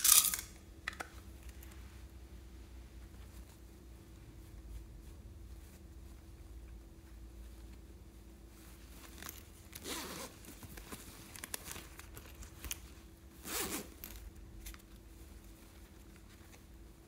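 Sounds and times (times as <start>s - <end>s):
small clicks and handling rustles: 0.0s - 2.0s, 8.5s - 17.0s
zipper rasps: 9.8s - 10.4s, 13.4s - 14.0s.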